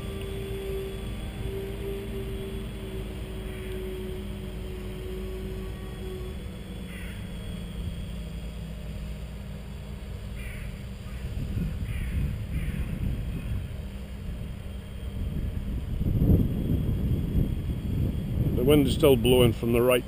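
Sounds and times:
wind rumbling on microphone: 0:09.6 - 0:20.0.

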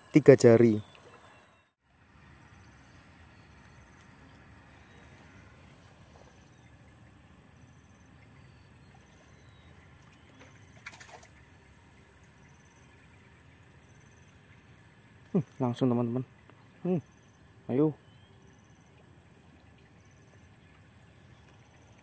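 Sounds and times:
low steady hiss: 0:00.0 - 0:22.0.

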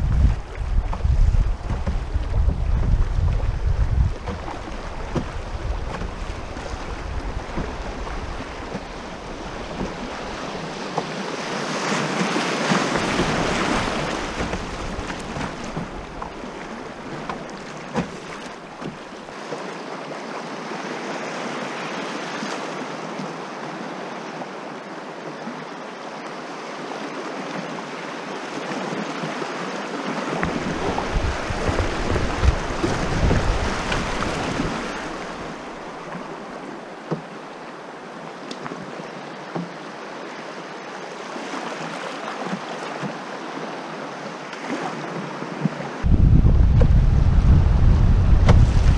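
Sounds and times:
wind on microphone: 0:00.0 - 0:19.1, 0:30.3 - 0:36.5, 0:46.0 - 0:48.9
river water rushing and splashing: 0:00.0 - 0:48.9.

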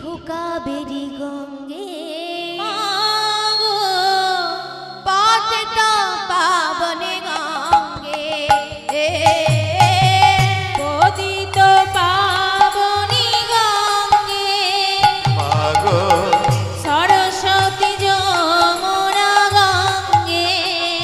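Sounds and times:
woman singing: 0:00.0 - 0:21.0
drum strikes: 0:07.7 - 0:21.0.

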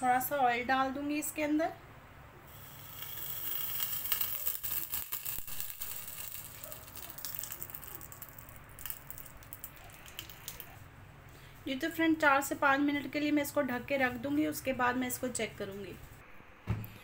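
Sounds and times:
oil sizzling on hot charcoal: 0:02.5 - 0:10.8.

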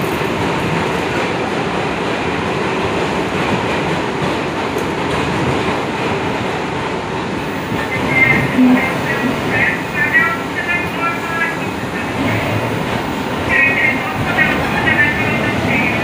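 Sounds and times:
subway train running: 0:00.0 - 0:16.0
high-pitched tones: 0:08.0 - 0:09.5.

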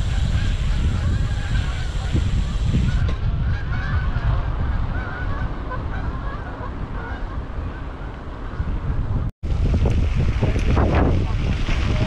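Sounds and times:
geese honking: 0:00.0 - 0:08.8
wind rumble on microphone: 0:00.0 - 0:12.0.

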